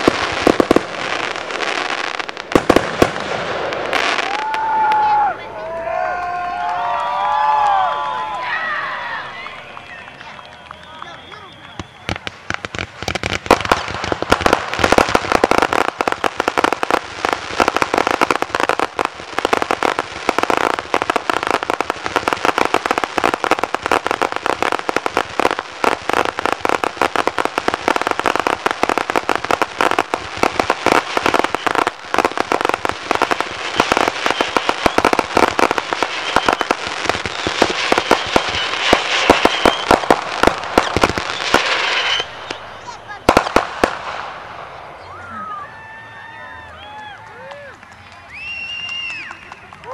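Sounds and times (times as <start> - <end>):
fireworks barrage: 0.0 - 5.6, 6.7 - 46.4.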